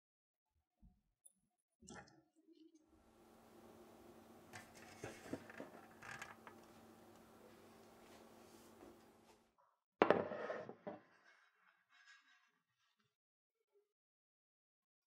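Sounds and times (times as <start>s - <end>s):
faint steady hum: 2.9s - 9.3s.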